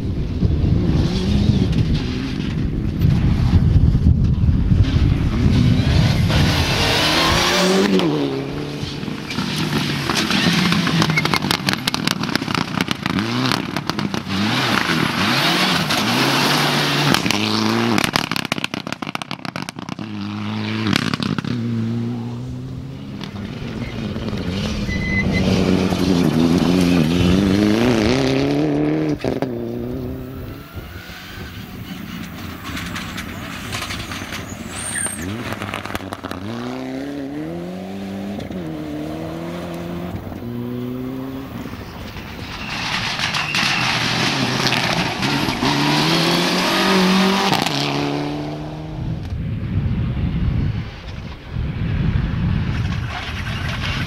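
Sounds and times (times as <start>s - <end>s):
rally car engines revving: 0.1s - 49.3s
sharp cracks and pops: 17.1s - 20.0s.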